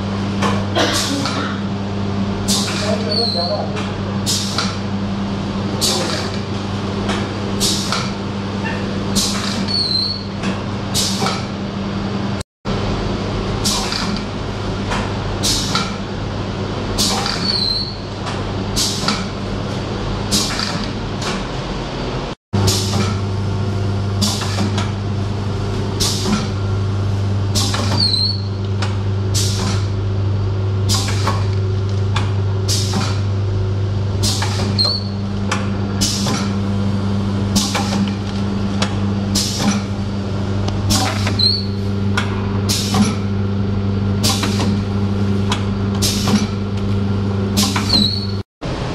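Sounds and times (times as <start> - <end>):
packing machine hum: 0.0 - 48.9
pneumatic clacks and air hisses: 2.4 - 4.8, 5.8 - 6.4, 7.1 - 11.6, 13.6 - 16.0, 17.0 - 21.6, 22.6 - 23.3, 24.2 - 25.0, 26.0 - 26.6, 27.5 - 30.0, 30.8 - 33.3, 34.2 - 36.6, 37.5 - 40.0, 40.8 - 43.3, 44.2 - 46.6, 47.6 - 48.4.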